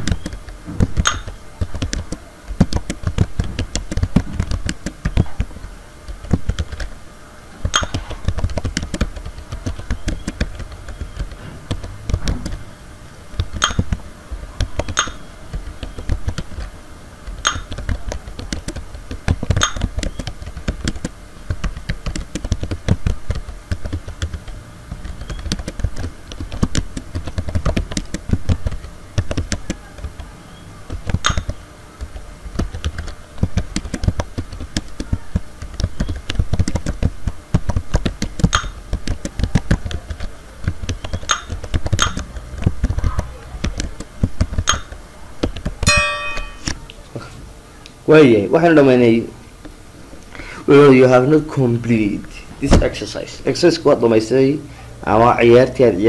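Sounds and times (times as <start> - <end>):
fast typing on keyboard: 0.0 - 7.0, 7.6 - 12.6, 13.4 - 30.3, 30.9 - 45.9.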